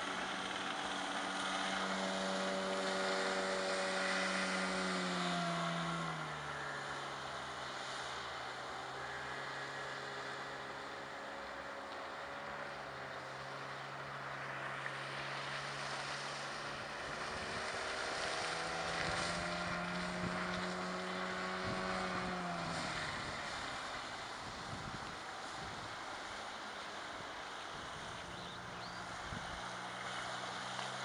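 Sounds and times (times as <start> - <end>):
outboard motor droning: 0.0 - 31.0
wind noise on microphone: 24.4 - 26.0.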